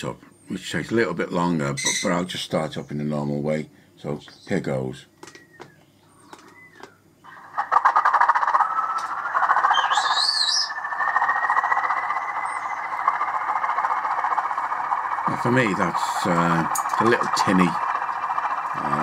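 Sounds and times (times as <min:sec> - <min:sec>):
whine rising in pitch: 0:07.3 - 0:19.0
tinny model locomotive engine sound: 0:07.4 - 0:19.0.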